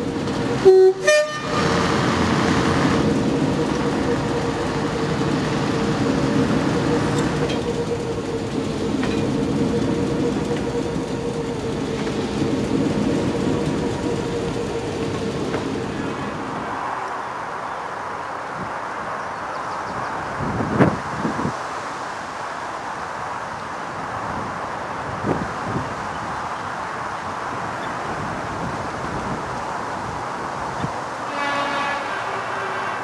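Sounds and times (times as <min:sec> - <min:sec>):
diesel train engine humming: 0:00.0 - 0:21.5, 0:22.4 - 0:33.0.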